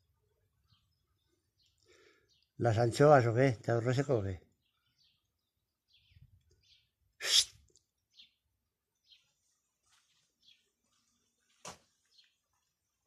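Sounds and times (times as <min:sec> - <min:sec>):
person sneezing: 0:07.2 - 0:07.6.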